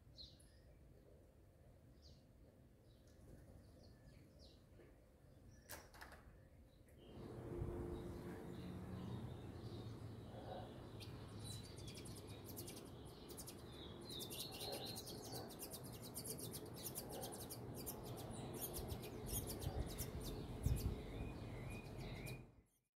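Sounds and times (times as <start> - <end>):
lower bird chirps: 6.6 - 22.8.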